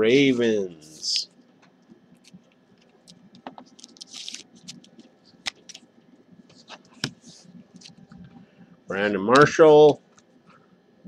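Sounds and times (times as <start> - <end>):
paper cards sliding and rustling: 3.8 - 5.8.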